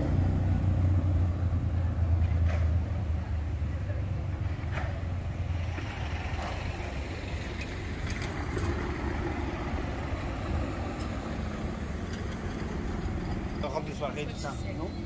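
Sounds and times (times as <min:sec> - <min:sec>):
cars driving past: 0:00.0 - 0:15.0.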